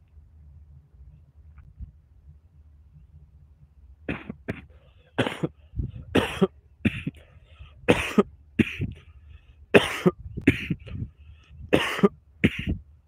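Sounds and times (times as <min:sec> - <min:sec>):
man coughing: 0:04.1 - 0:07.2, 0:07.9 - 0:08.9, 0:09.8 - 0:10.9, 0:11.8 - 0:12.8.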